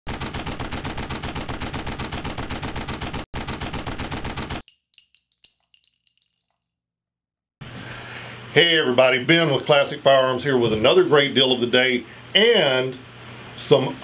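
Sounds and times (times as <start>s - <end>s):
rapid automatic gunfire: 0.1s - 4.6s
metallic clicks and pings: 4.6s - 6.8s.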